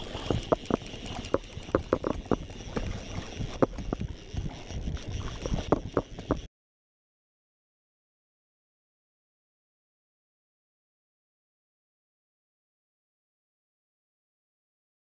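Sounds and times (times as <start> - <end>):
wind: 0.0 - 6.5.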